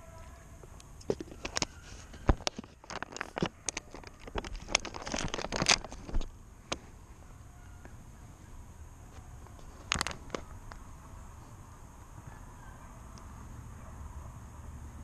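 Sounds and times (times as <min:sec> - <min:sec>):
plastic object crackling: 0:01.0 - 0:06.4, 0:09.4 - 0:10.8.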